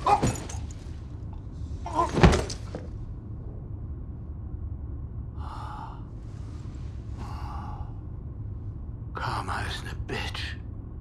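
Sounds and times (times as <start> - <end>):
body thudding on floor: 2.0 - 2.9.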